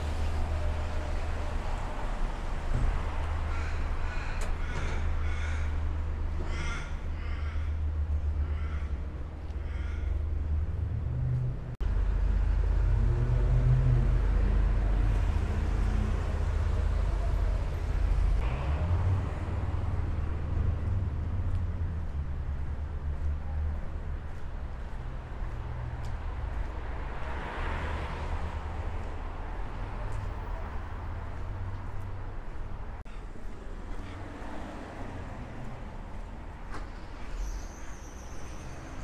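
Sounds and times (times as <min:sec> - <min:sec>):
street traffic rumble: 0:00.0 - 0:39.0
crow cawing: 0:03.4 - 0:10.3.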